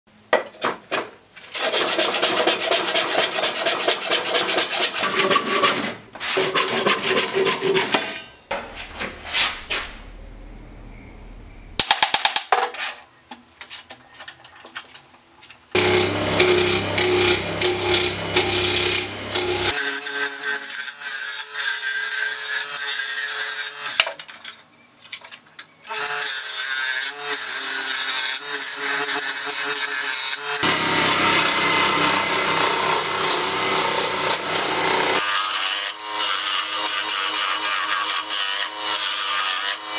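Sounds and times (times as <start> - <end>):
wood lathe motor hum: 15.8 - 19.8, 30.6 - 39.9
gouge cutting spinning wood: 15.8 - 20.0, 30.6 - 39.9.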